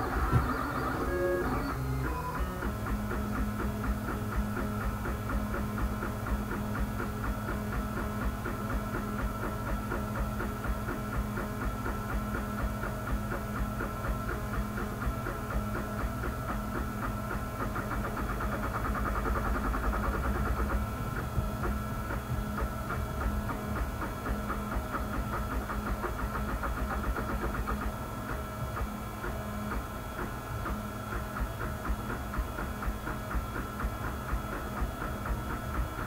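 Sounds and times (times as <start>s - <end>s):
stepper motors whining and buzzing: 0.0s - 3.1s
steady low hum: 0.0s - 36.0s.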